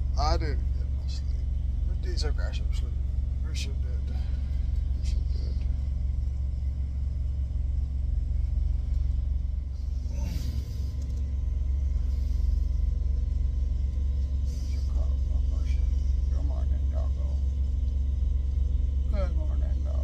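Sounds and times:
truck engine idling: 0:00.0 - 0:20.0.

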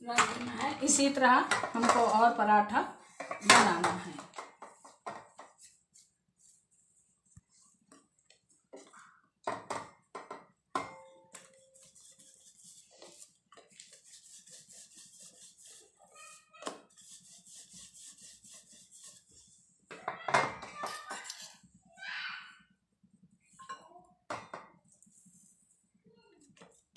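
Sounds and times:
rolling pin rolling dough: 0:09.7 - 0:20.3.

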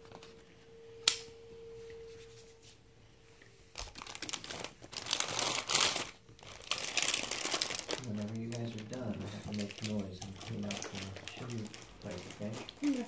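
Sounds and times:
plastic packaging crinkling: 0:03.7 - 0:13.0.

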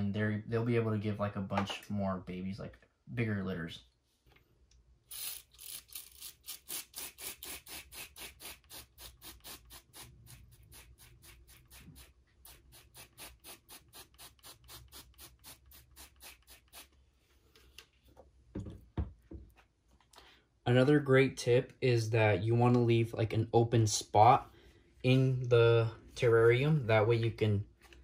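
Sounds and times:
spray bottle hissing: 0:05.1 - 0:16.9.

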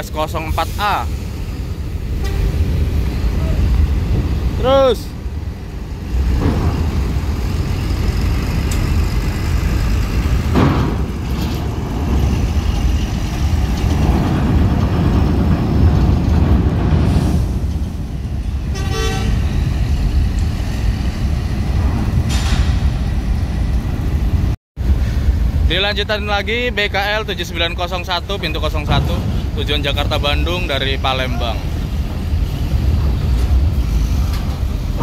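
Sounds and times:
bus engines running: 0:00.0 - 0:25.7, 0:26.5 - 0:35.0
bus horn toot: 0:02.2 - 0:02.6, 0:18.7 - 0:19.4.

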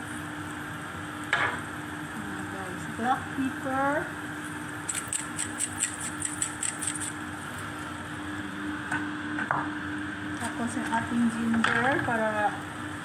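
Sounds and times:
steady low hum: 0:00.0 - 0:13.0
pepper shaker ticking: 0:04.9 - 0:07.2.

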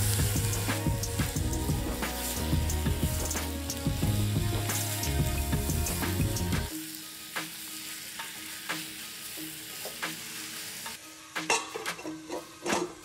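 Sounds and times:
background music: 0:00.0 - 0:13.0
chicken sizzling in pan: 0:00.0 - 0:13.0
metal lid clanking onto pan: 0:11.5 - 0:13.0.

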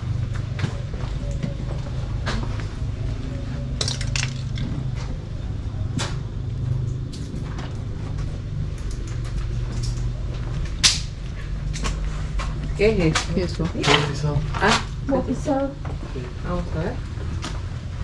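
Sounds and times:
steady low hum: 0:00.0 - 0:18.0
sharp cracks: 0:10.7 - 0:11.2.

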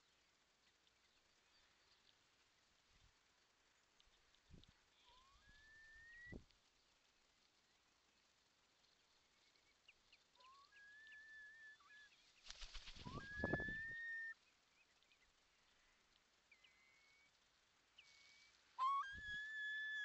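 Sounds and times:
faint high chirps: 0:03.7 - 0:06.5, 0:07.9 - 0:20.0
curlew rising whistle: 0:05.0 - 0:06.4, 0:10.4 - 0:12.2, 0:12.8 - 0:14.4, 0:18.0 - 0:20.0
rapid wingbeats with low thumps: 0:12.4 - 0:13.6.

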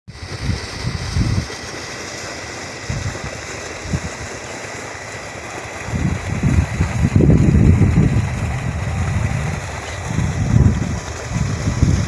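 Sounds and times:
wind buffeting microphone: 0:00.2 - 0:01.6, 0:02.8 - 0:04.4, 0:05.7 - 0:12.0.

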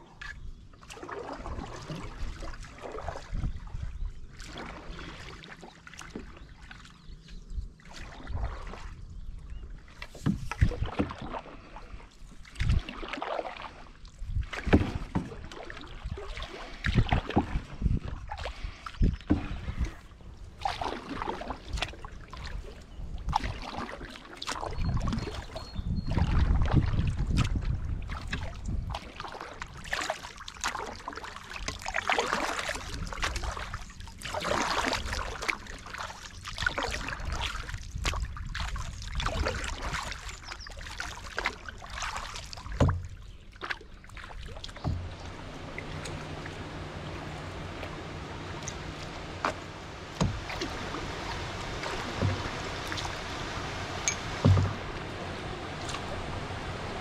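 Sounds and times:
canoe paddle splashing in water: 0:00.0 - 0:57.0
low rumble: 0:44.5 - 0:57.0.

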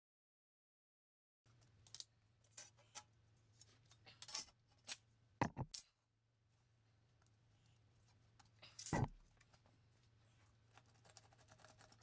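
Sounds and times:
tools clicking and knocking on concrete: 0:05.4 - 0:05.9, 0:08.6 - 0:09.2.

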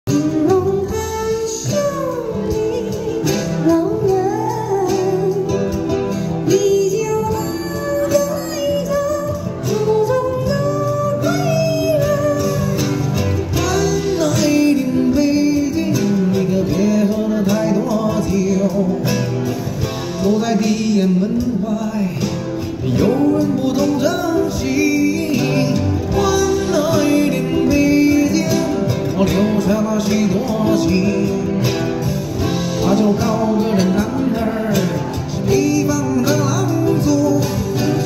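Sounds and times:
acoustic guitar: 0:00.0 - 0:38.0
percussion: 0:00.0 - 0:38.0
person singing sliding melody: 0:00.1 - 0:19.4.

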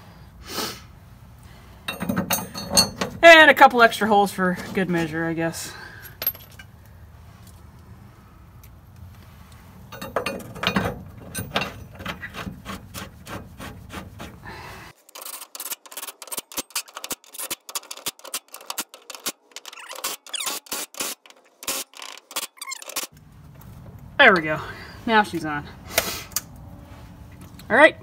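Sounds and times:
metal scraping and clinking: 0:01.9 - 0:03.3, 0:06.0 - 0:06.8, 0:09.8 - 0:14.3, 0:15.0 - 0:23.2.

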